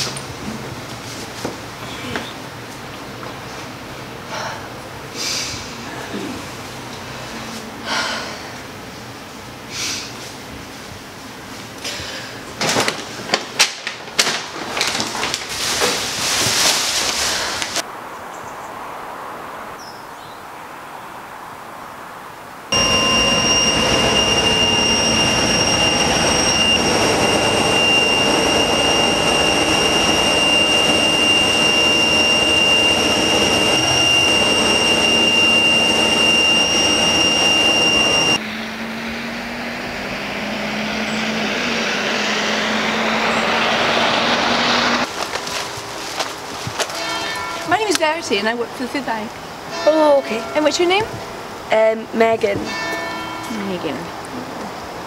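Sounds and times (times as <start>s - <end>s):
bus running rumble: 0.0s - 14.0s, 22.7s - 47.8s
bus engine approaching: 22.7s - 49.7s
high-pitched whine: 22.7s - 51.7s.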